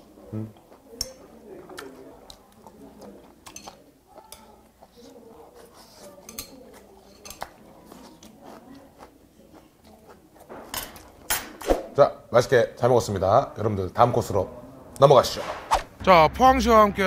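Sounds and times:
quiet chewing: 0:00.0 - 0:11.3
metal chopsticks clicking on plates: 0:00.6 - 0:05.1, 0:06.0 - 0:07.6.

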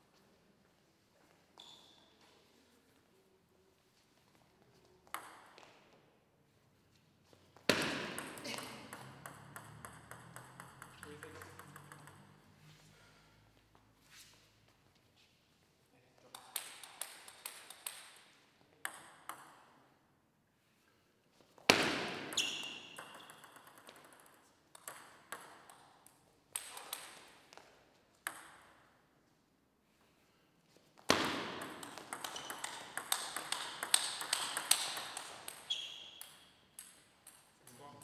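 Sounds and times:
table tennis ball bouncing: 0:05.0 - 0:05.9, 0:07.6 - 0:12.6, 0:16.3 - 0:19.9, 0:21.6 - 0:29.0, 0:31.0 - 0:38.0.

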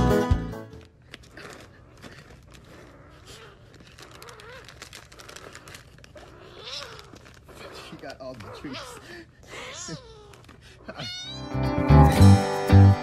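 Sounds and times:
piano music: 0:00.0 - 0:00.7, 0:11.4 - 0:13.0
crinkling handling noises: 0:00.6 - 0:11.4.

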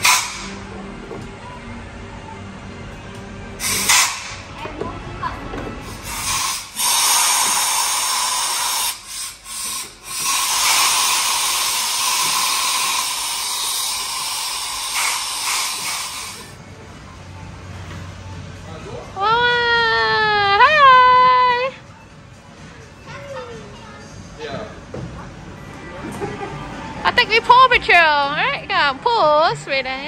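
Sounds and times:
toy fire extinguishers hissing: 0:00.0 - 0:00.6, 0:03.6 - 0:04.4, 0:05.8 - 0:16.6.

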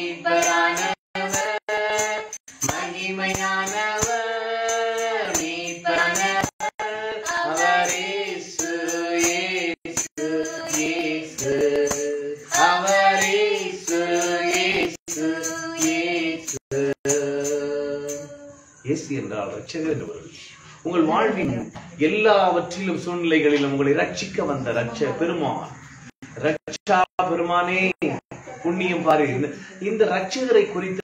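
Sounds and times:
man singing worship song: 0:00.0 - 0:19.0.

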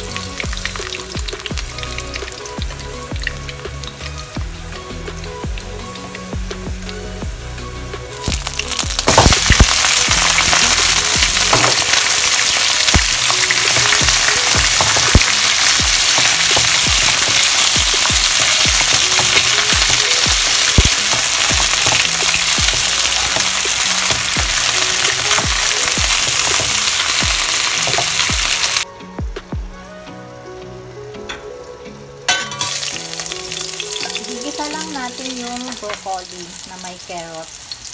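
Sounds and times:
chicken frying in hot oil: 0:00.0 - 0:28.9, 0:32.3 - 0:37.9.

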